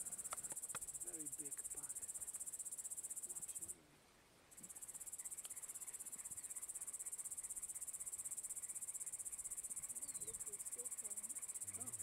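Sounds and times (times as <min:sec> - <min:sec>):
insect trilling: 0:04.6 - 0:12.0.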